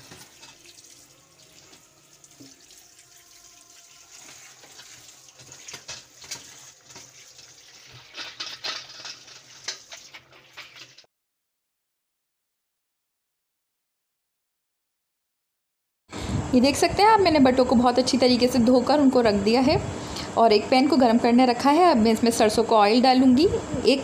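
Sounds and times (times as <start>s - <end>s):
hands rubbing and rinsing: 0.0s - 11.0s
tap water running into colander: 0.0s - 11.0s
water splashes: 0.0s - 11.0s.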